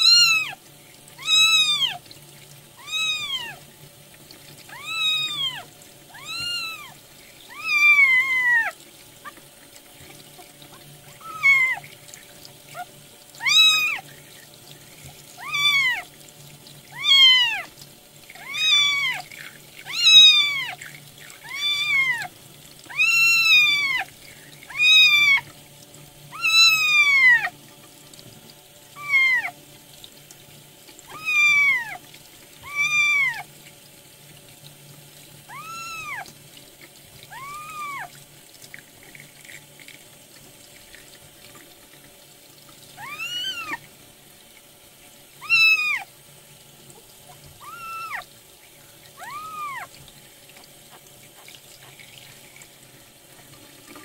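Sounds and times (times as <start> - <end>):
tap water running in a sink: 0.0 - 54.0
kitten mewing: 1.2 - 2.0, 2.8 - 3.6, 4.7 - 8.7, 11.1 - 11.8, 12.7 - 14.0, 15.4 - 16.0, 16.9 - 17.7, 19.9 - 20.8, 22.9 - 24.1, 26.3 - 27.5, 29.0 - 29.5, 31.1 - 32.0, 32.6 - 33.4, 35.5 - 36.3, 37.3 - 38.1, 43.0 - 43.8, 45.4 - 46.1, 47.6 - 48.2, 49.2 - 49.9.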